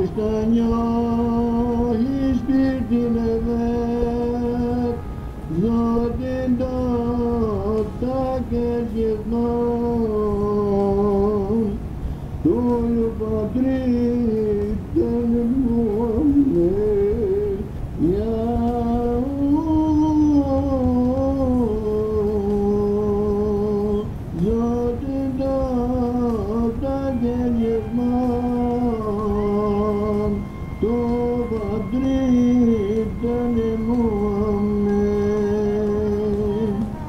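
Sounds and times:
person singing a hymn: 0.0s - 37.0s
singer breathing: 11.9s - 12.4s.

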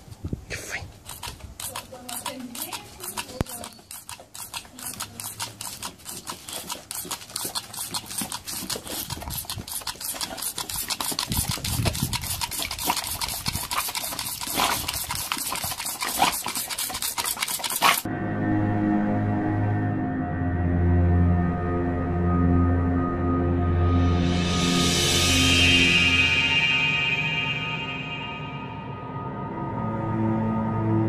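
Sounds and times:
water pistol squirting: 0.5s - 18.1s.

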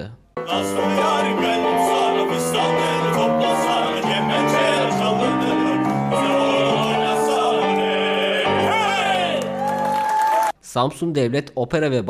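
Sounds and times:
male vocal quartet singing: 0.4s - 9.6s.

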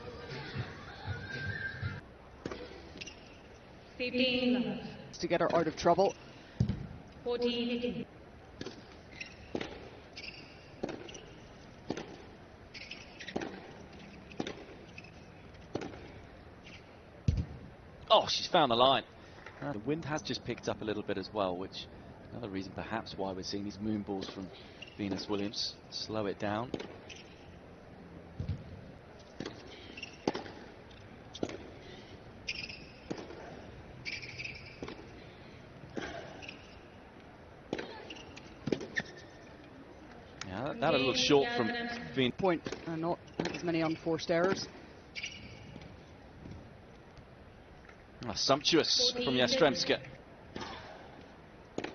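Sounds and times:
tennis ball bouncing: 6.6s - 7.0s, 8.5s - 17.6s, 26.7s - 27.4s, 28.4s - 31.8s, 32.4s - 35.2s, 37.6s - 39.4s, 42.5s - 43.8s
rackets striking tennis ball: 8.5s - 17.6s, 26.7s - 27.5s, 28.4s - 31.8s, 32.4s - 35.2s, 37.6s - 39.4s, 42.4s - 48.0s, 50.0s - 51.9s
tennis racket hitting ball: 9.4s - 12.3s, 13.2s - 14.8s, 32.5s - 33.4s.

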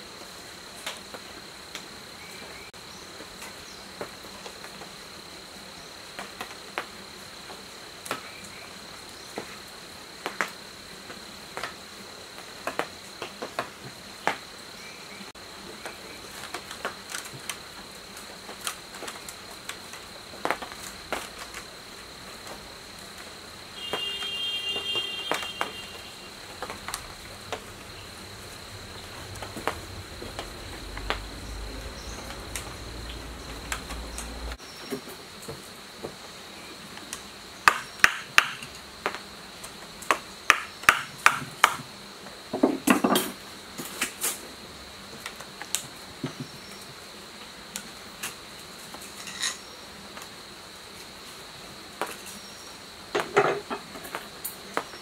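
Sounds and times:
high-pitched insect trill: 1.3s - 42.1s, 48.3s - 51.3s.

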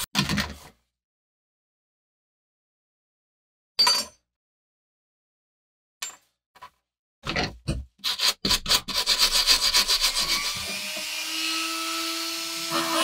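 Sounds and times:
rotary tool grinding: 8.0s - 11.4s.

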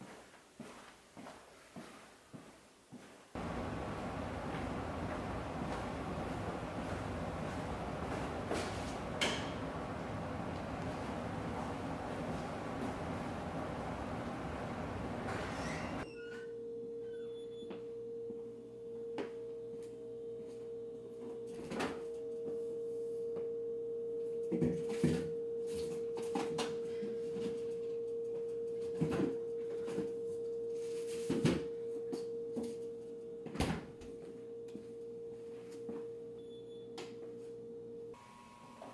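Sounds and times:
steady pure tone: 3.4s - 17.0s.

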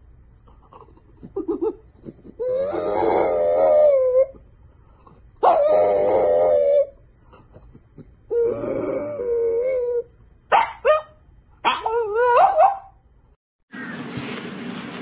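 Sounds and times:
dog howling: 2.4s - 4.4s, 5.4s - 7.0s, 8.3s - 10.1s.

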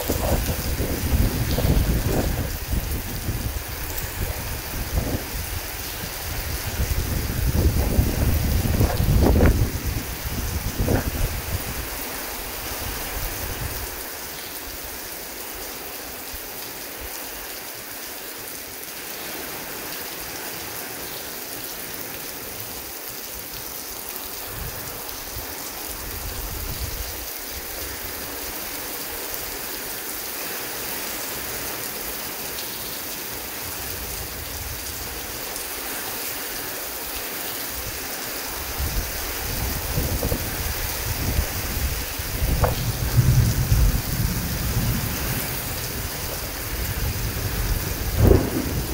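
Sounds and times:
low rolls of thunder: 0.0s - 11.8s, 38.9s - 48.9s
heavy rain falling: 0.0s - 48.9s.

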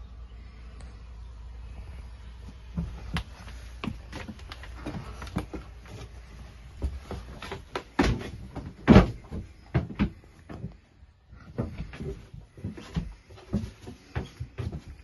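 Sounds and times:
footsteps on wooden floor: 2.4s - 10.8s, 11.5s - 15.0s.

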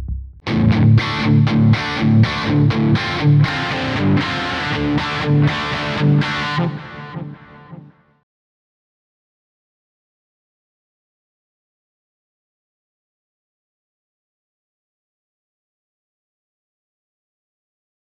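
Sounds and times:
distorted electric guitar riff: 0.4s - 8.2s.

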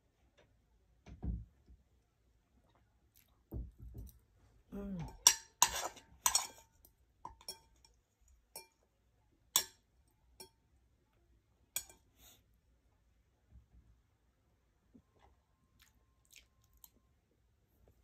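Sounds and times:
tableware clinking: 5.1s - 6.7s.

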